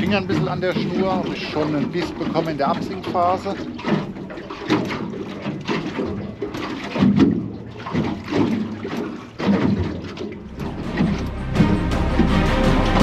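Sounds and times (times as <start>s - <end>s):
water lapping against boat hull: 0.0s - 12.7s
music: 10.5s - 13.0s.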